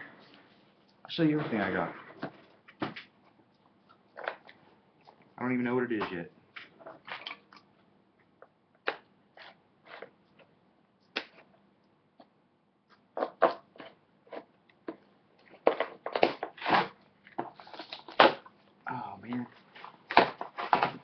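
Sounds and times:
packaging crinkling and snapping: 6.7s - 7.7s, 15.4s - 18.6s.

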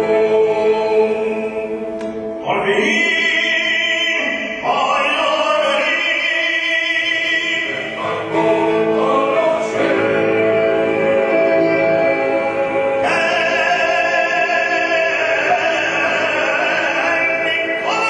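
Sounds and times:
choir singing: 0.0s - 3.0s, 4.2s - 18.0s
man singing operatic held notes: 2.4s - 18.0s
orchestra playing: 7.0s - 18.0s.

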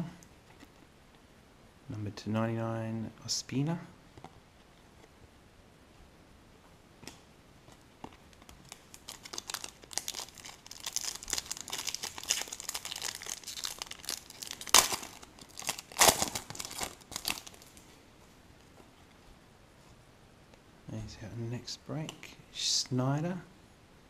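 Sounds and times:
foil wrapper crinkling: 8.1s - 17.8s
sharp foil crackles: 8.4s - 17.8s.

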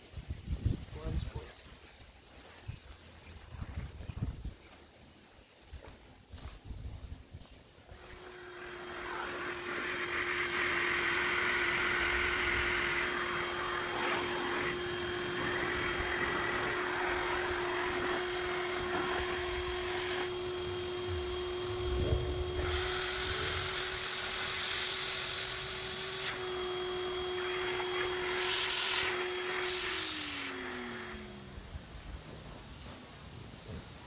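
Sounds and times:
electric air pump humming: 7.8s - 32.0s
rush of air through hose: 7.9s - 31.6s.

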